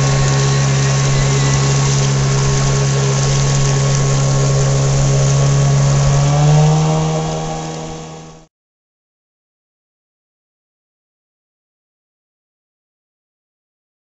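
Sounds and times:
motorboat engine running: 0.0s - 8.5s
water rushing along hull: 0.0s - 8.5s.

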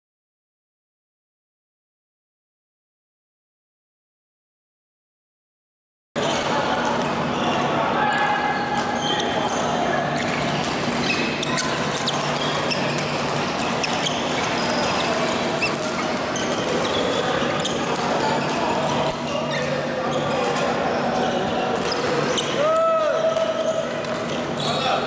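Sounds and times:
chatter: 6.2s - 25.0s
shoe squeaks: 7.3s - 22.6s, 23.5s - 25.0s.

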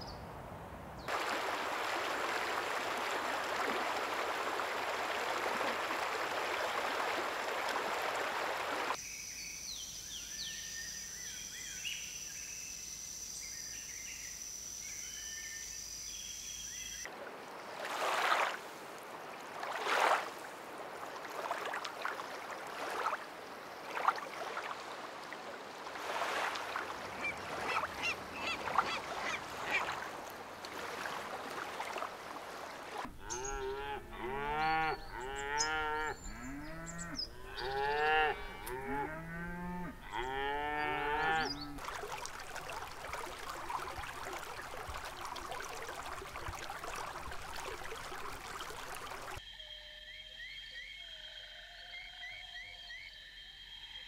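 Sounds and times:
water splashing and lapping: 1.1s - 9.0s, 17.1s - 49.4s
cattle mooing: 33.2s - 41.8s.

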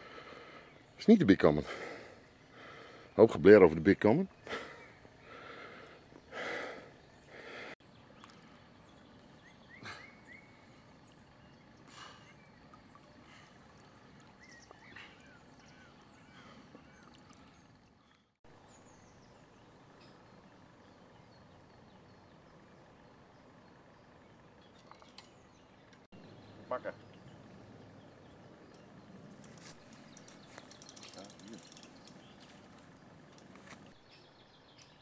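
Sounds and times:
water sloshing: 12.5s - 18.1s
small bird chirps: 14.3s - 35.0s.

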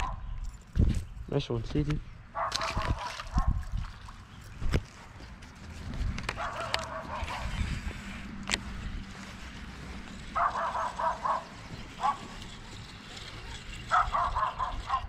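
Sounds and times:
dog barking: 2.4s - 3.6s, 6.4s - 7.6s, 10.4s - 12.4s, 13.9s - 15.0s.

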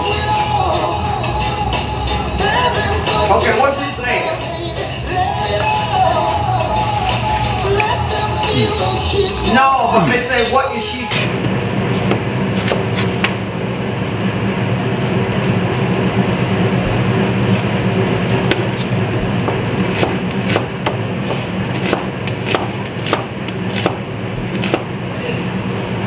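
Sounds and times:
steady low hum: 0.0s - 26.0s
knife chopping on cutting board: 12.0s - 13.4s, 18.5s - 24.9s.

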